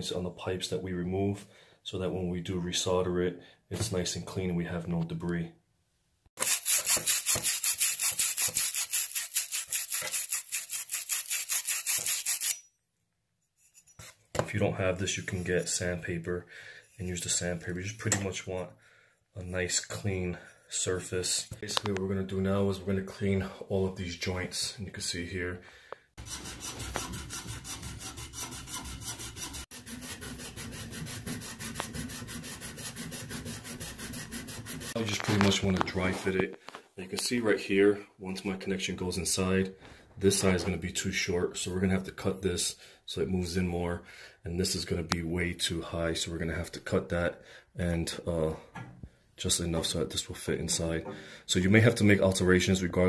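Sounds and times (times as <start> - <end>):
abrasive rasping on copper pipe: 6.4 - 12.6.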